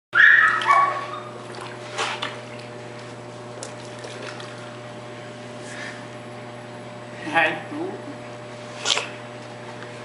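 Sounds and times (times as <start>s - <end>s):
water splashing in a pool: 0.2s - 5.2s.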